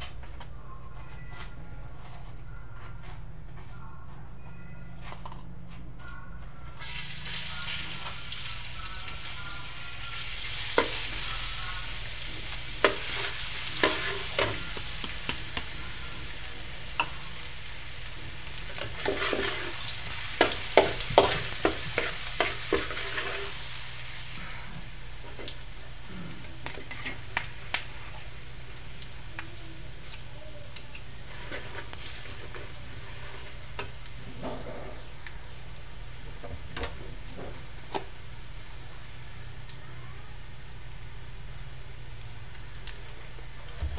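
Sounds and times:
metal spoon scraping a pan: 0:06.8 - 0:17.7, 0:18.4 - 0:24.1, 0:26.3 - 0:28.4, 0:30.0 - 0:35.2
garlic sizzling in a wok: 0:06.8 - 0:34.3.

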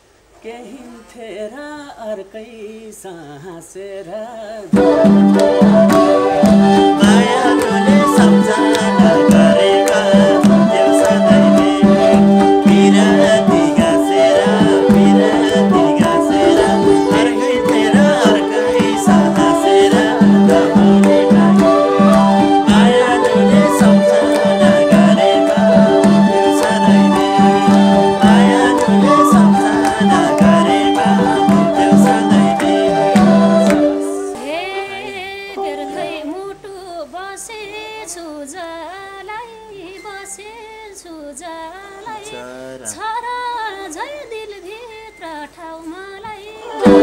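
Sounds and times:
person singing: 0:00.4 - 0:40.5, 0:41.4 - 0:47.0
folk band playing: 0:04.7 - 0:34.8, 0:35.6 - 0:36.6, 0:46.7 - 0:47.0
man speaking: 0:42.3 - 0:43.0.

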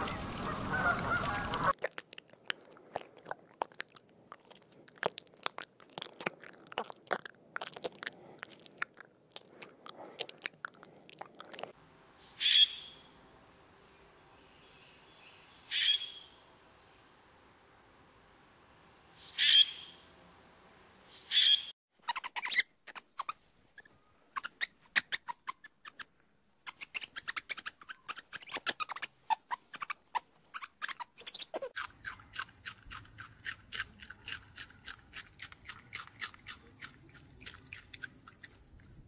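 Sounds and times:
bird calls: 0:00.0 - 0:01.7, 0:12.2 - 0:13.2, 0:14.4 - 0:16.4, 0:19.2 - 0:20.0
rabbits munching: 0:00.0 - 0:11.8, 0:31.8 - 0:39.0.

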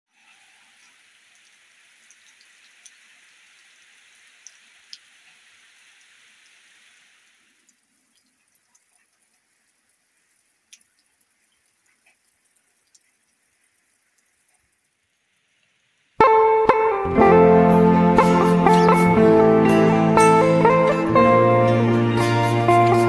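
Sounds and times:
water drips and ticks: 0:00.1 - 0:16.2
light rain hiss: 0:00.1 - 0:23.0.

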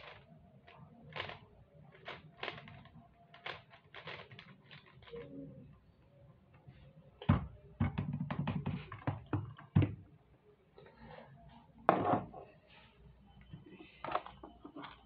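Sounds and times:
plastic clicks of puzzle cube turning: 0:00.0 - 0:05.3.

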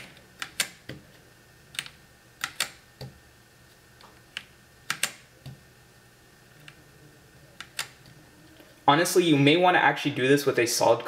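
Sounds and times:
mechanical keyboard keystrokes: 0:00.0 - 0:01.0, 0:01.7 - 0:03.1, 0:04.4 - 0:05.6, 0:07.6 - 0:08.0.

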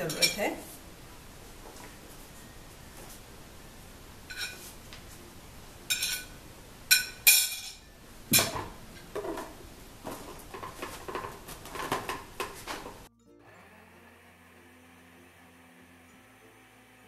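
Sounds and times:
metal spoon clinking on glass plate: 0:05.9 - 0:07.8
plastic lid knocking and rattling: 0:10.1 - 0:12.9.

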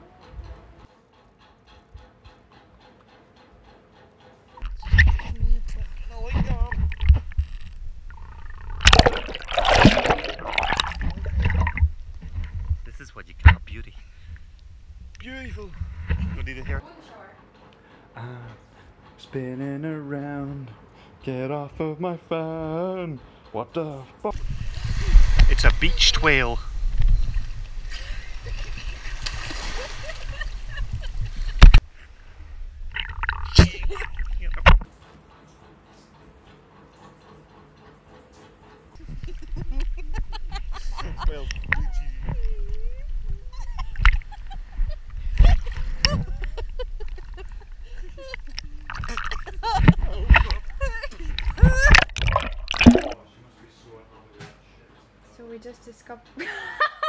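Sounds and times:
sea water splashing: 0:04.6 - 0:13.7, 0:24.4 - 0:26.5, 0:27.6 - 0:31.8, 0:32.9 - 0:34.8, 0:40.9 - 0:53.2.

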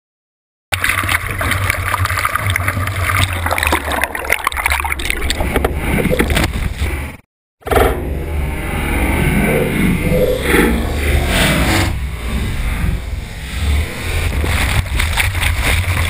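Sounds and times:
crackling of churning bubbles: 0:00.7 - 0:06.9, 0:14.2 - 0:16.0
underwater breaking wave rumble: 0:00.8 - 0:16.0.

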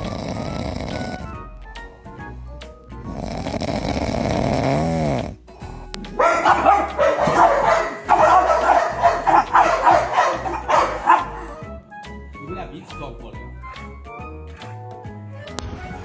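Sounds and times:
dog snoring: 0:00.0 - 0:01.6, 0:03.0 - 0:05.6
background music: 0:00.0 - 0:16.0
dog barking and yipping: 0:06.2 - 0:11.6.

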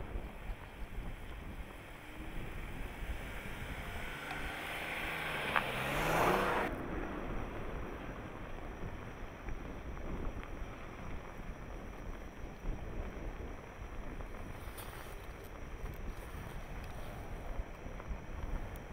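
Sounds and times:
wind buffeting microphone: 0:00.0 - 0:18.9
car engine passing by: 0:01.6 - 0:08.0.

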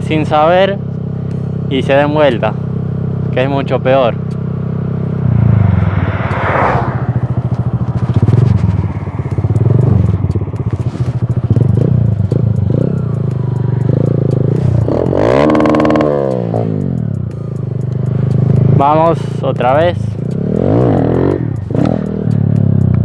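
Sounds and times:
motorcycle engine revving: 0:00.0 - 0:23.0
wind rush: 0:05.3 - 0:09.5
clatter: 0:07.2 - 0:18.7.

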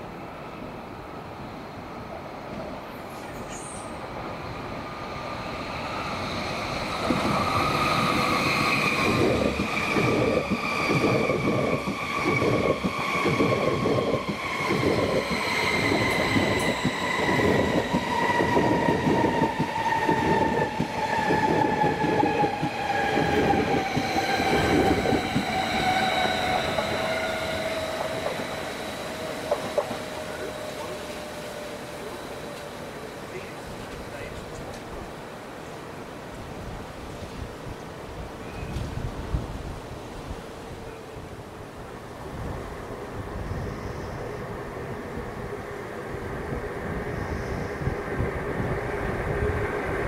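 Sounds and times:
train wheels clattering over rail joints: 0:08.9 - 0:31.3.

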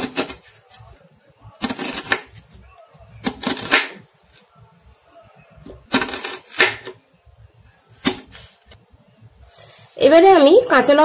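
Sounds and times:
knife slicing onion: 0:00.0 - 0:00.8, 0:01.6 - 0:02.6, 0:03.2 - 0:04.0, 0:05.8 - 0:07.0.

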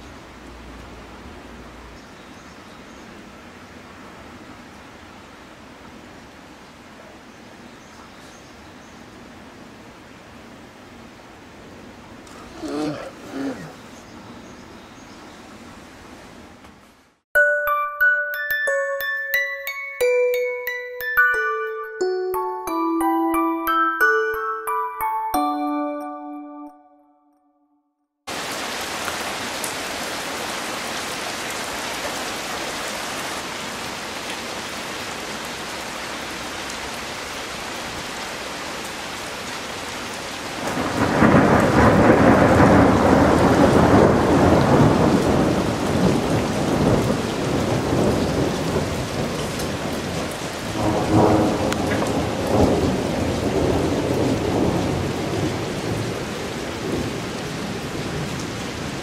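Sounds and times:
heavy rain: 0:00.0 - 0:14.7, 0:28.3 - 0:59.0
thunder rumbling: 0:40.6 - 0:58.4.

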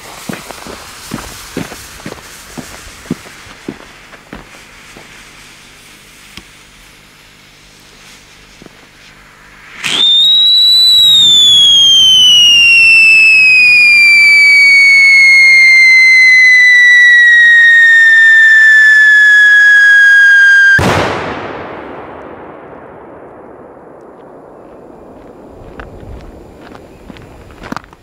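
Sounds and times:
firework whistle: 0:04.4 - 0:21.5
firework bang: 0:09.4 - 0:27.8.

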